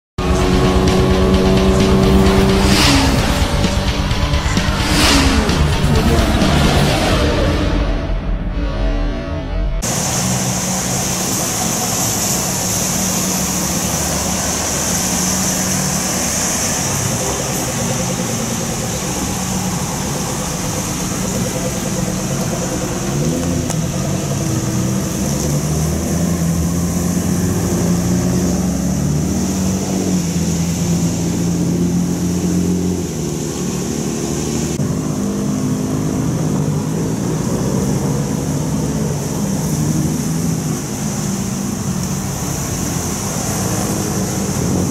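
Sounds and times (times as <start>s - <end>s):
engine revving: 0.0s - 44.9s
car engines idling and pulling away: 0.2s - 44.9s
hiss from wet road: 9.8s - 44.9s.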